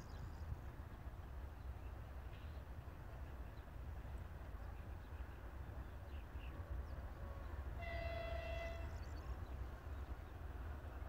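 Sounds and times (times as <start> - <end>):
locomotive air horn blast: 7.8 - 8.9.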